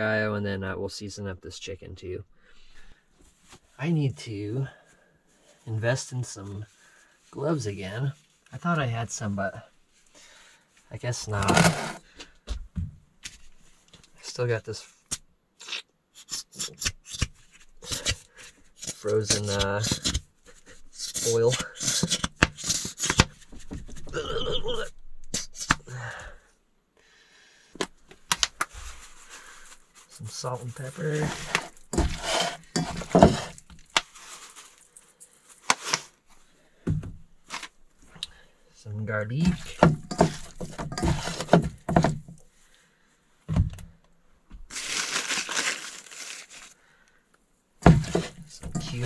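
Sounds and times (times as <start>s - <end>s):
rustling in paper bag: 28.6s - 36.5s, 44.7s - 46.8s.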